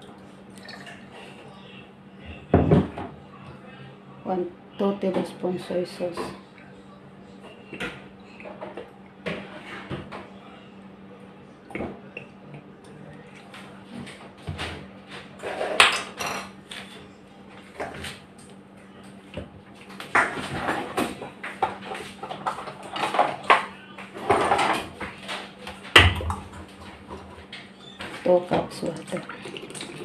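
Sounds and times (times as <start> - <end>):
steady low hum: 0.0 - 30.0
kitchenware clatter: 15.4 - 16.9, 20.1 - 29.0.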